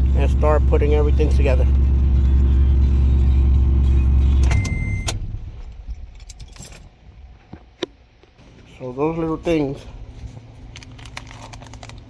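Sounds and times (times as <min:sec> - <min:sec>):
car engine idling: 0:00.0 - 0:06.2, 0:08.4 - 0:12.0
high beep: 0:04.3 - 0:05.2.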